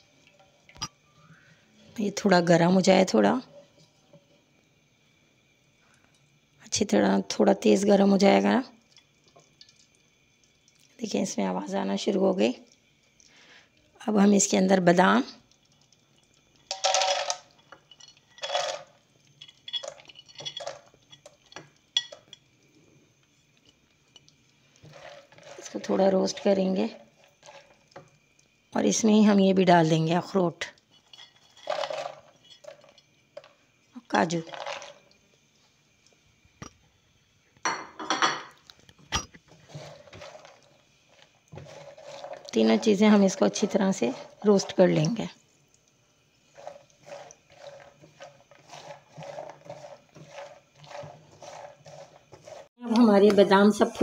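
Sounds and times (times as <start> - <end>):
nuts clattering into pan: 16.6 - 22.4, 31.0 - 33.6, 34.3 - 35.2
nuts rattling and scraping in pan: 16.6 - 22.4, 24.2 - 28.1, 30.9 - 33.6, 34.2 - 35.1, 39.4 - 45.3, 46.5 - 52.8.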